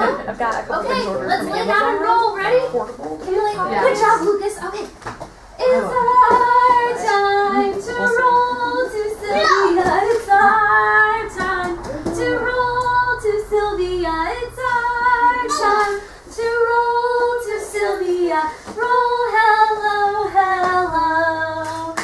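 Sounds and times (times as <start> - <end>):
woman singing: 5.6 - 22.0
child's high voice: 9.3 - 9.9.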